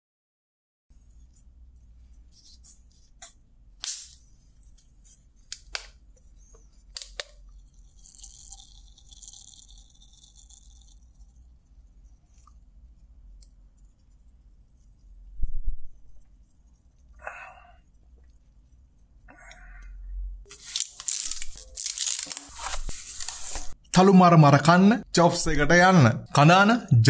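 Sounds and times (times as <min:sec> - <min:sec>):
plastic bottle crinkling: 0:07.0 - 0:11.2, 0:20.5 - 0:23.8.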